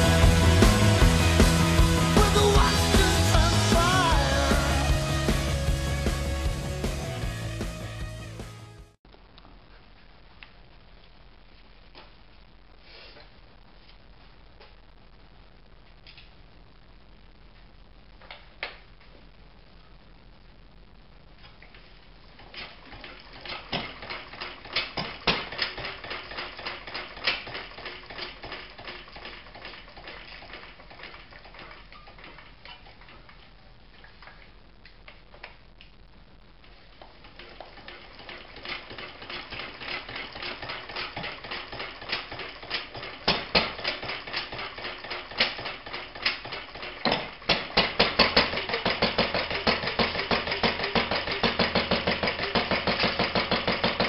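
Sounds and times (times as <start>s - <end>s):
engine cranking clatter: 22.4s - 32.5s, 37.4s - 54.0s.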